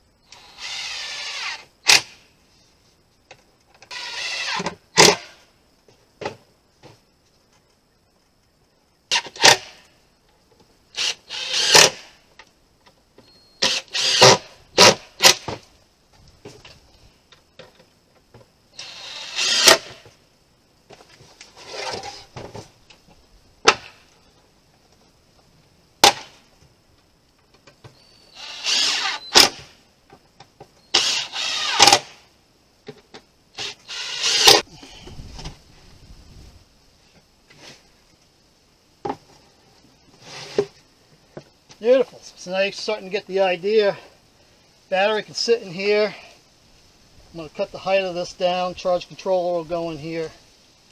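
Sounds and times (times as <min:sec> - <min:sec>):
cordless drill driving screws: 0:00.3 - 0:01.6, 0:03.9 - 0:05.1, 0:11.0 - 0:12.0, 0:13.6 - 0:15.4, 0:18.8 - 0:20.0, 0:28.4 - 0:29.6, 0:30.9 - 0:32.2, 0:33.6 - 0:34.6.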